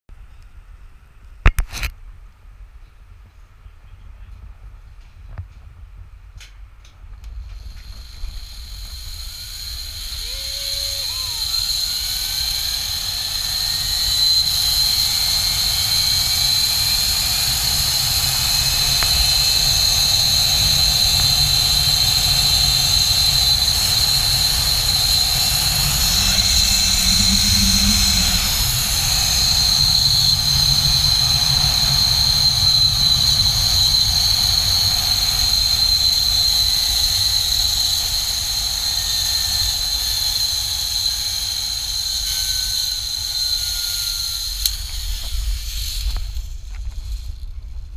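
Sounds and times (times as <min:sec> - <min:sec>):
wind rushing over microphone: 0:07.0 - 0:40.7
high-pitched whine: 0:07.3 - 0:47.9
zip-line trolley running on cable: 0:07.3 - 0:47.9.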